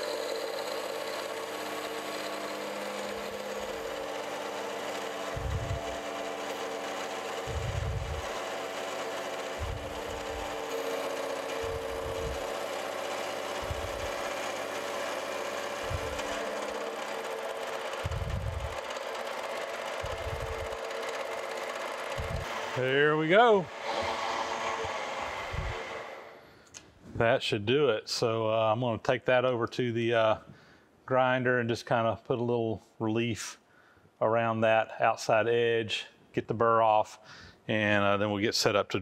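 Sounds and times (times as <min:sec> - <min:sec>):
milling machine humming and whining: 0:00.0 - 0:22.8, 0:23.7 - 0:26.4.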